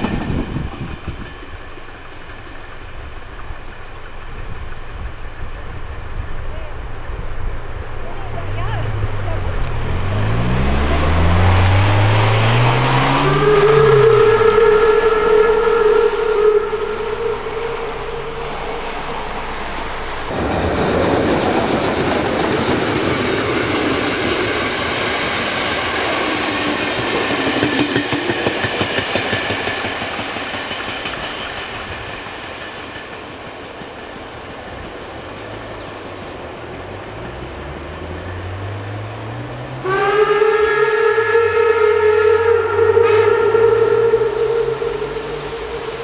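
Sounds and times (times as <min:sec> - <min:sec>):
train wheels clacking: 0:00.0 - 0:07.2, 0:12.0 - 0:37.4
car driving over crossing: 0:08.4 - 0:26.0, 0:36.7 - 0:40.2.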